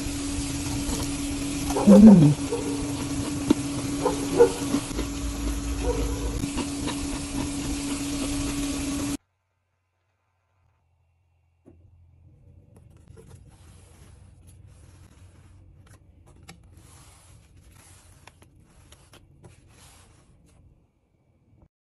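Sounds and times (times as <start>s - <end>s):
rubbing and crackling handling noise: 12.6s - 20.8s.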